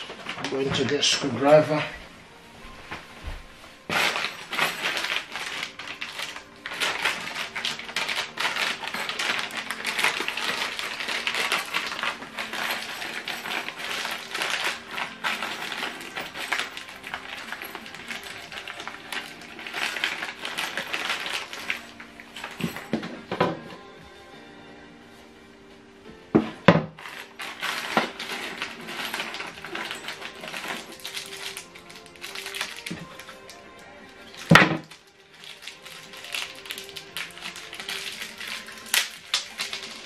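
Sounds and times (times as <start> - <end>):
plastic bag crinkling: 3.9 - 23.0, 27.0 - 40.0
metal screws clinking: 4.0 - 23.2, 27.0 - 33.6.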